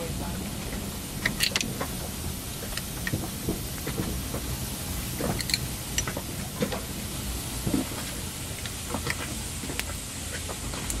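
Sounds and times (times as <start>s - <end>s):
spanner clicking on bolts: 1.2s - 2.0s, 5.2s - 6.8s.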